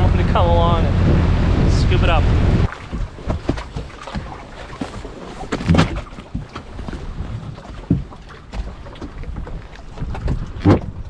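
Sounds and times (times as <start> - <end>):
knocks and thumps in a boat: 0.0 - 11.0.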